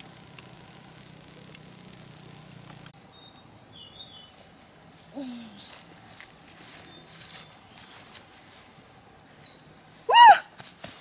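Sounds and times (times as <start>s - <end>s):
campfire embers crackling: 0.0s - 3.0s
high insect trill: 0.0s - 11.0s
bird chirps: 2.9s - 4.4s.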